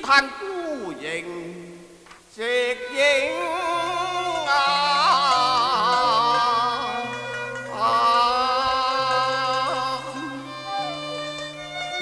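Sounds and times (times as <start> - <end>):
opera singing: 2.4 - 12.0
instrumental accompaniment: 2.8 - 12.0.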